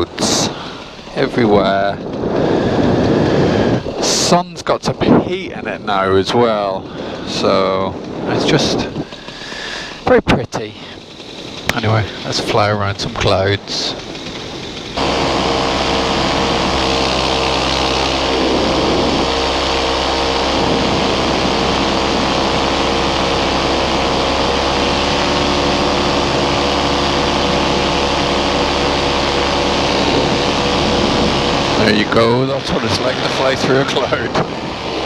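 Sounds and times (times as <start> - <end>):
paramotor engine drone: 0.0 - 35.0
rush of air: 2.0 - 4.0.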